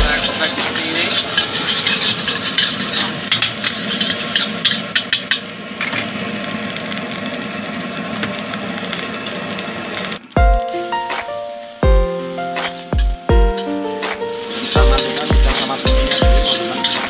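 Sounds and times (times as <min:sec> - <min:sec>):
food sizzling in hot oil: 0:00.0 - 0:17.0
metal spatula scraping a wok: 0:01.0 - 0:05.4.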